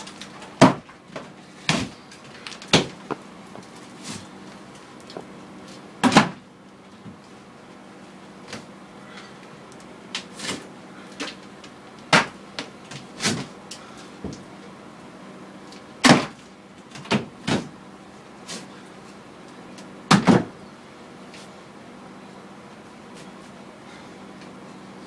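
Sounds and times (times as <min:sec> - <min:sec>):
steady low hum: 0:00.0 - 0:25.0
boards knocking and clunking: 0:00.3 - 0:03.6.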